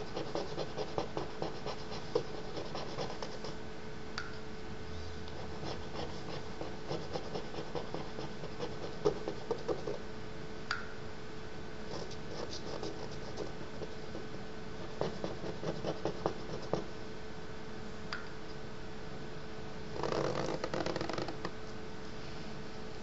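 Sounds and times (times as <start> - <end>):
stick scratching on paper: 0.0 - 3.6, 5.3 - 10.0, 11.9 - 16.9
background hum: 0.0 - 23.0.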